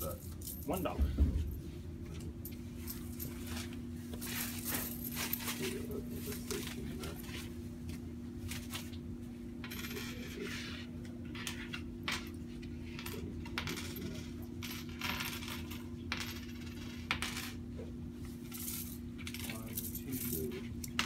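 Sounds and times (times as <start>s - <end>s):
low electrical hum: 0.0s - 21.0s
coins clinking: 9.6s - 10.5s, 13.0s - 17.6s, 18.5s - 21.0s.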